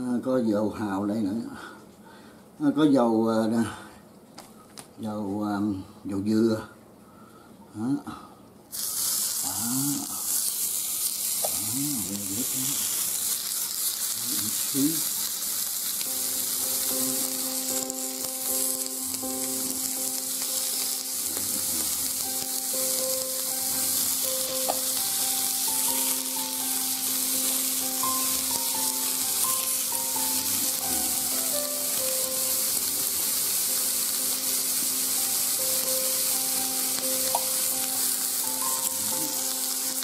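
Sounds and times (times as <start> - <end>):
meat sizzling on a grill: 8.7 - 40.0
soft instrumental music: 16.0 - 40.0.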